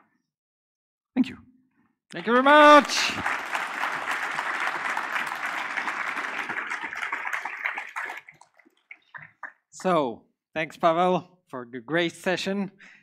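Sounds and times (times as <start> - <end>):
audience applauding: 2.1 - 9.6.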